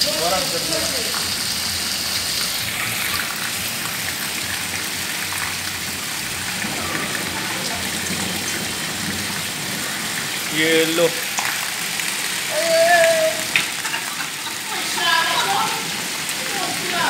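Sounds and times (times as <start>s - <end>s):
heavy rain on concrete: 0.0s - 17.0s
hailstones ticking on ground: 4.6s - 17.0s.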